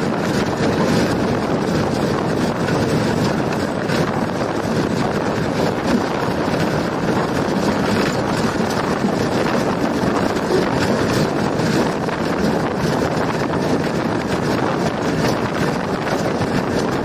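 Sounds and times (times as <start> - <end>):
locomotive running on track: 0.0 - 17.0
wind on the microphone: 0.0 - 17.0.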